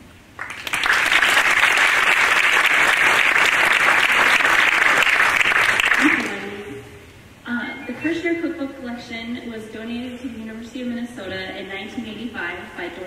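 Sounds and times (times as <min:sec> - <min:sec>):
audience applauding: 0:00.4 - 0:06.4.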